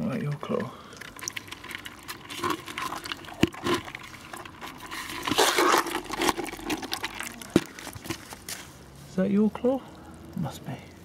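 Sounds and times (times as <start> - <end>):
crabs clicking in plastic bucket: 0.0 - 8.5.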